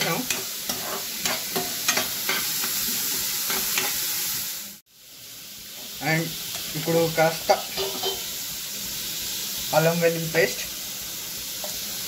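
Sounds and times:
steel spoon scraping a pan: 0.0s - 4.1s, 7.5s - 8.4s
onions sizzling in oil: 0.0s - 12.0s.

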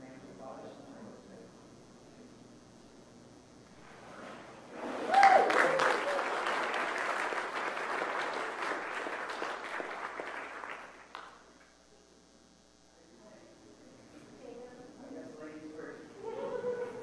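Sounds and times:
crowd applauding: 5.0s - 11.4s
person cheering: 5.1s - 6.5s.

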